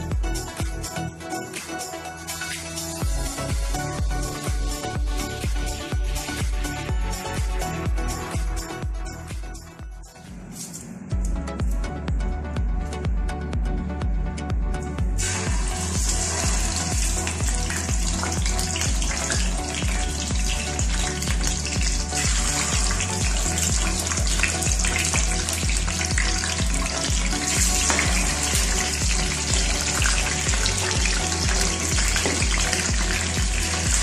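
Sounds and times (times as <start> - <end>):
background music with bass beat: 0.0 - 34.0
fish frying in hot oil: 15.2 - 34.0.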